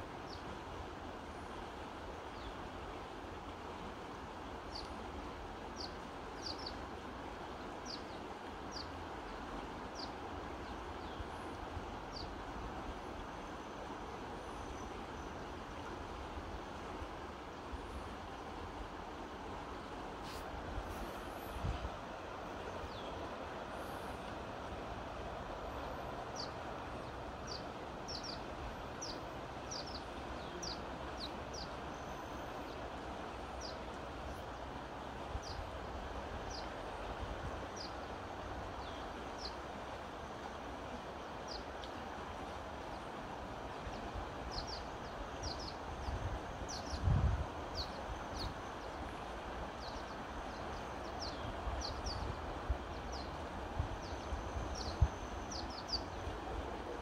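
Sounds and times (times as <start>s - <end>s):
river rushing over stones: 0.0s - 57.0s
small birds chirping: 5.8s - 6.8s, 7.8s - 9.0s, 25.8s - 32.9s, 43.9s - 47.1s, 47.7s - 49.2s, 49.8s - 53.4s, 54.0s - 56.3s.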